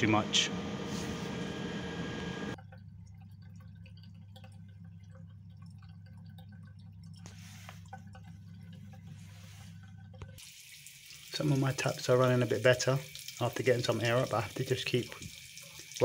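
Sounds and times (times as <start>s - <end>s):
steady machinery noise: 0.0s - 2.6s
low steady hum: 0.0s - 10.4s
tap water dripping and splashing: 2.6s - 16.0s.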